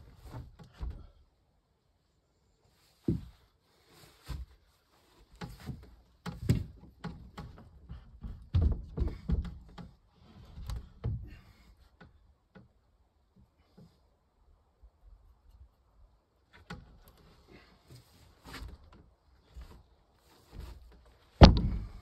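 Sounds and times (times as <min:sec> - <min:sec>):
knocks and thuds: 0:05.4 - 0:09.9, 0:21.4 - 0:22.0.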